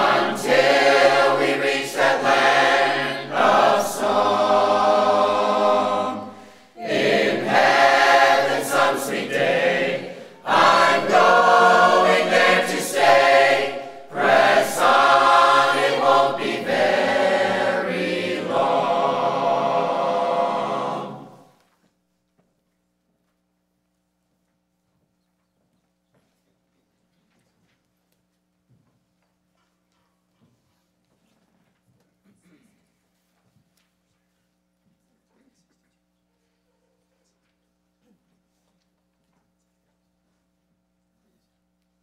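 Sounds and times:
choir singing a hymn: 0:00.0 - 0:21.6.

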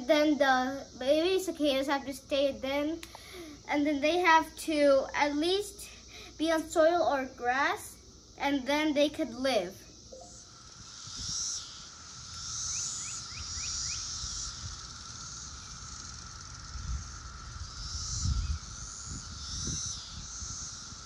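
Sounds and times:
cicadas buzzing calls: 0:00.0 - 0:21.0
cicadas droning: 0:00.0 - 0:21.0
wind rumble on microphone: 0:11.0 - 0:11.4, 0:15.6 - 0:21.0.

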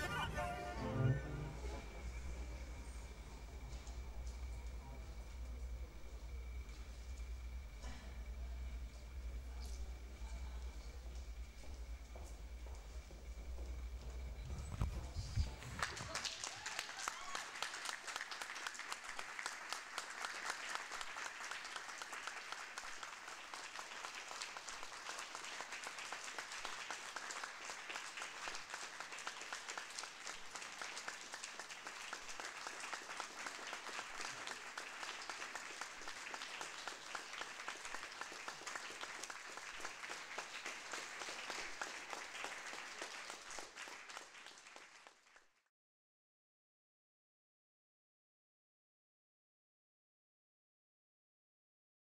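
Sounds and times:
audience applauding: 0:00.0 - 0:05.5, 0:15.4 - 0:45.7.

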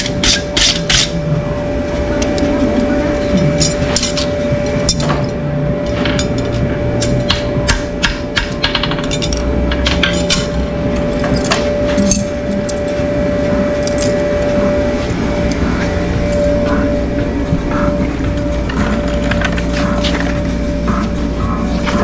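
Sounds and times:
hammer striking metal: 0:00.0 - 0:01.2, 0:05.9 - 0:10.6
steady tone: 0:00.0 - 0:22.0.

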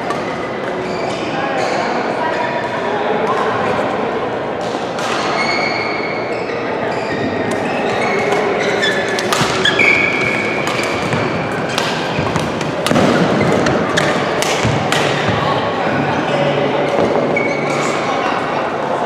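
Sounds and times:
court shoes squeaking: 0:00.0 - 0:03.6, 0:04.6 - 0:19.0
busy sports hall din: 0:00.0 - 0:19.0
rackets hitting shuttlecock: 0:07.5 - 0:15.7.

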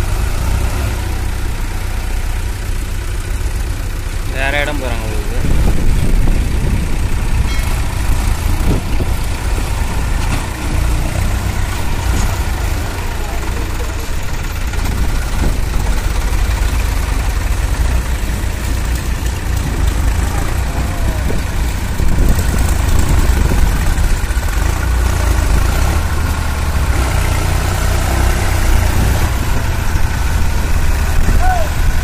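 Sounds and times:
tractor engines rumbling: 0:00.0 - 0:32.0.

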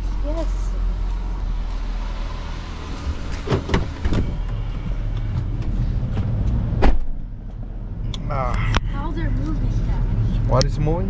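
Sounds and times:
road rumble inside car: 0:00.0 - 0:11.0
loud thump: 0:06.1 - 0:07.3.

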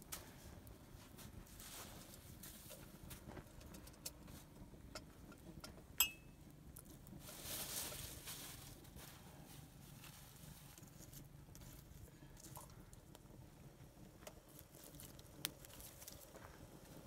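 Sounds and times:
faint taps and crackles: 0:00.0 - 0:06.0, 0:14.0 - 0:17.0
metal teapot clink: 0:06.0 - 0:06.3.

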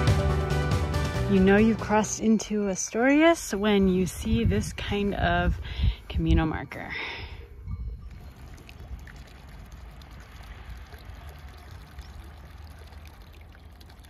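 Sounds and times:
trickle of running water: 0:08.1 - 0:14.0.

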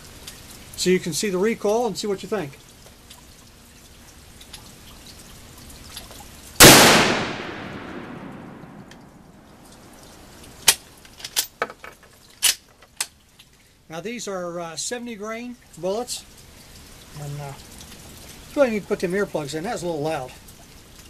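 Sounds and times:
rifle shot echoing: 0:06.6 - 0:09.4.

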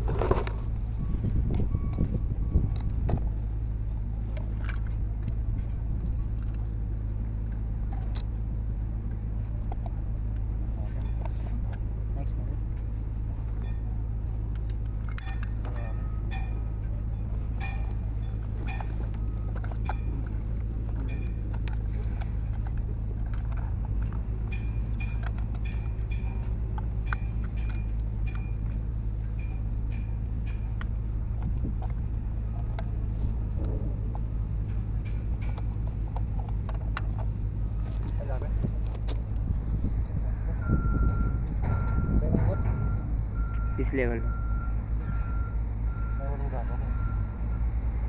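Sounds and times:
low rumble: 0:00.0 - 0:48.0
metal clicks and clinks: 0:14.5 - 0:31.0.

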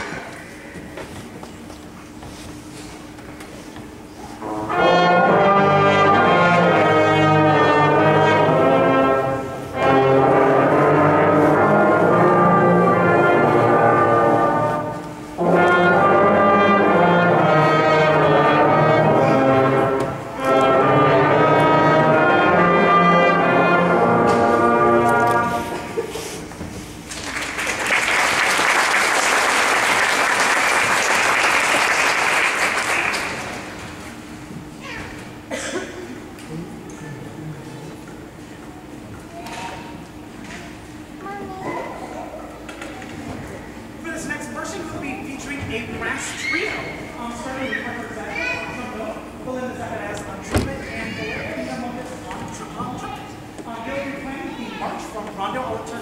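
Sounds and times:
brass section playing: 0:04.4 - 0:26.1
audience applauding: 0:27.1 - 0:34.0.

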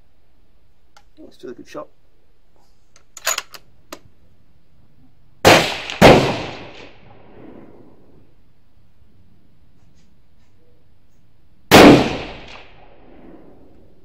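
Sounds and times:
loud rifle shots: 0:05.4 - 0:07.4, 0:11.7 - 0:13.3.

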